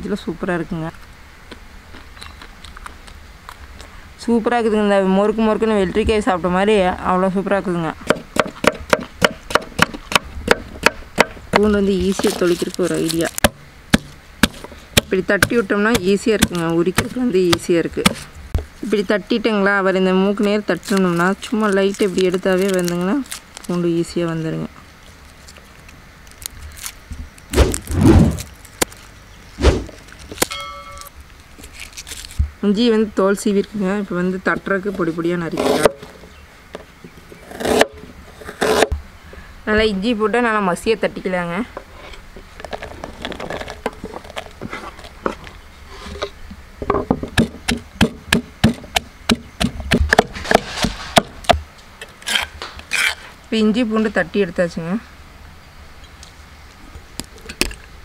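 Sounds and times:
stone pestle pounding in mortar: 8.1 - 11.8, 13.4 - 18.3, 47.1 - 50.6
papery garlic skins rustling: 11.7 - 13.5, 14.4 - 19.0, 20.1 - 32.8
dull thumps: 13.3 - 18.7, 46.8 - 51.7
short pitched tone: 30.5 - 31.1.

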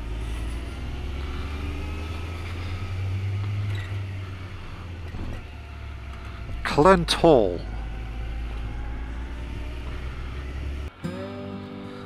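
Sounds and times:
wind and road noise: 0.0 - 11.0
motorcycle engine running: 7.7 - 11.2.

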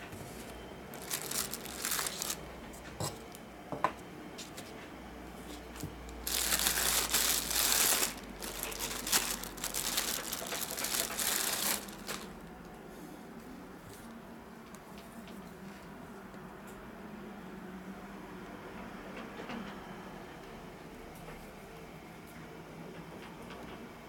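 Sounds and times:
plastic bag crinkling: 0.9 - 2.5, 5.7 - 12.8.

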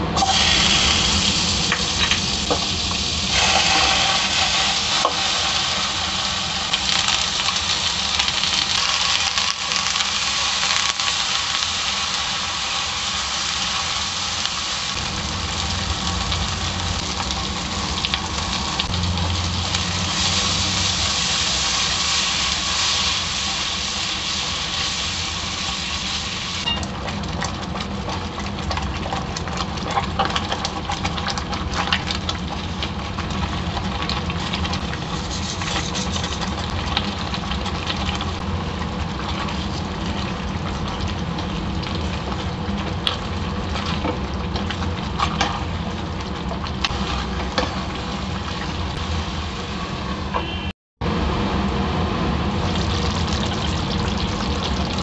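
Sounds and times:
chicken sizzling in a pan: 0.2 - 50.7, 52.5 - 55.0
spatula scraping a pan: 35.1 - 36.6.

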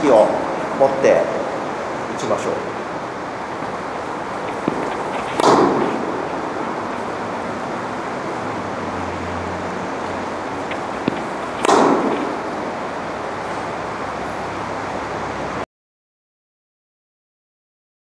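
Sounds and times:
steady hiss: 0.0 - 15.6
ball bouncing: 3.5 - 7.2, 10.6 - 12.6
tennis racket hitting ball: 3.5 - 8.0, 10.0 - 13.5.

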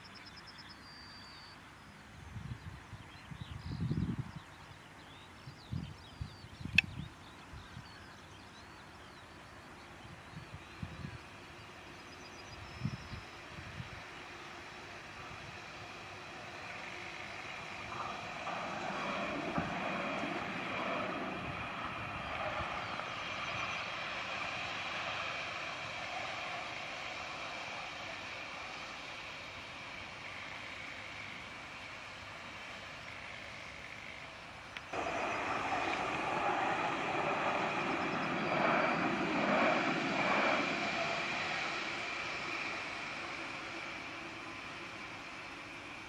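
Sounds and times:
distant tram hiss and rumble: 0.0 - 46.0
wind gusts on microphone: 2.2 - 4.6, 10.0 - 11.3, 17.4 - 26.6, 34.9 - 44.2.

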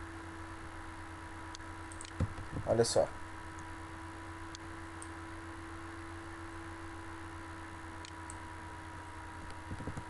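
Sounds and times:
electrical hum and hiss: 0.0 - 10.0.

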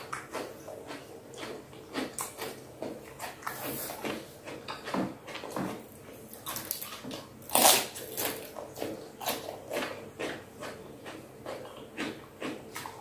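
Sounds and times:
cucumber being chewed: 0.0 - 13.0.

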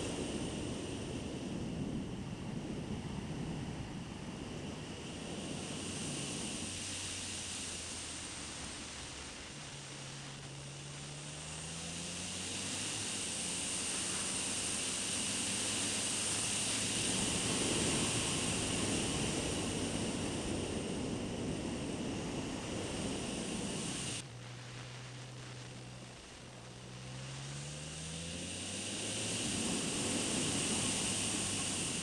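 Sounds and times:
wind rush: 0.0 - 9.8, 13.6 - 24.2, 28.5 - 32.0
motorcycle engine running: 0.0 - 32.0.

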